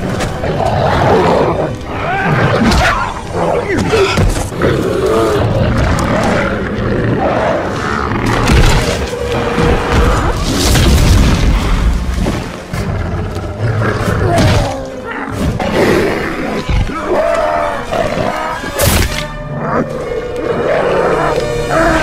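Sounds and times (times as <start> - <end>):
monster roars and snarls: 0.0 - 12.0
dramatic music: 0.0 - 22.0.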